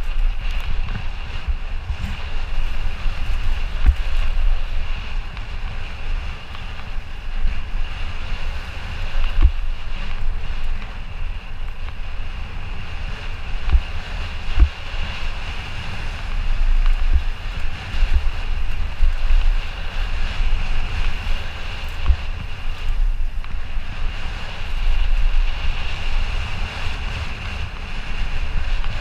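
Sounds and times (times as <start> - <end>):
bike knocking on bumps: 0.0 - 4.7, 9.2 - 11.0, 13.6 - 14.9, 21.3 - 23.6
wind rushing over microphone: 0.0 - 29.0.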